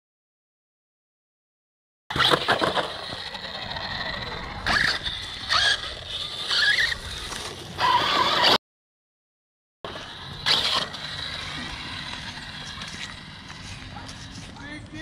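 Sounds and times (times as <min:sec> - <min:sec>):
crunchy differential noise: 0:02.1 - 0:08.6, 0:09.9 - 0:15.0
rc truck motor whining: 0:02.1 - 0:08.6, 0:09.9 - 0:14.7.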